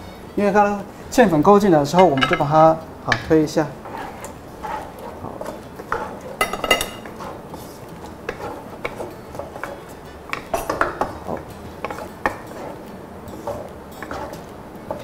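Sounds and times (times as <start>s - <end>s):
spatula scraping a wok: 3.8s - 15.0s.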